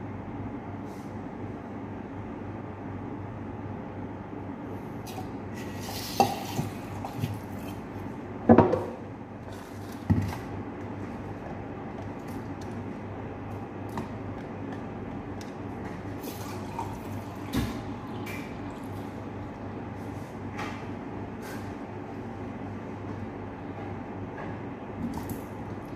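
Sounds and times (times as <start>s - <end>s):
steady low hum: 0.0s - 25.9s
dishes knocking on counter: 8.5s - 9.0s.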